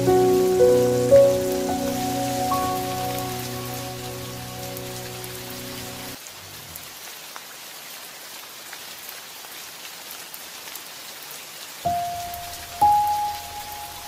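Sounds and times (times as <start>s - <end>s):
held music notes: 0.0s - 6.2s, 11.9s - 14.0s
food sizzling: 0.0s - 6.8s.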